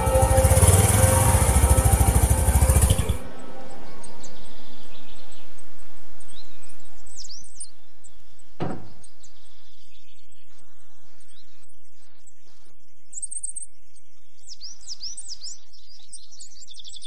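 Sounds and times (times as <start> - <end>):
music: 0.0 - 7.8
birds chirping: 0.0 - 17.0
knock: 8.6 - 9.0.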